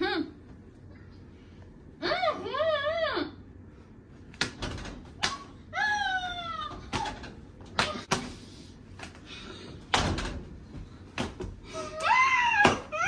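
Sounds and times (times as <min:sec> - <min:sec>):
tortilla slaps against faces: 0:04.3 - 0:05.6, 0:06.9 - 0:08.4.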